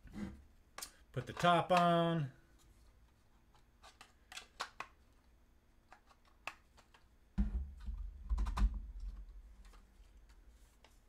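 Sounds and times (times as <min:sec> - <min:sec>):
plastic parts clicking: 0:00.7 - 0:02.0, 0:03.5 - 0:07.1.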